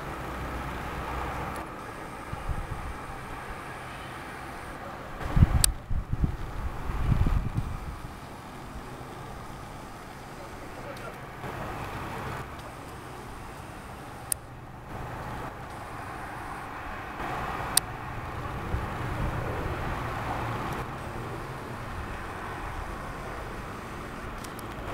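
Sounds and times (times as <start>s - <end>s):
distant road traffic: 0.0s - 24.9s
sharp clicks: 1.4s - 2.1s, 4.7s - 5.8s, 7.6s - 16.0s, 17.2s - 17.9s, 20.6s - 22.2s, 22.8s - 24.9s.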